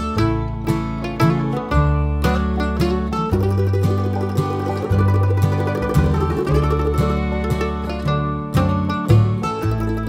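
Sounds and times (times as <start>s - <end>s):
plucked string music: 0.0s - 10.0s.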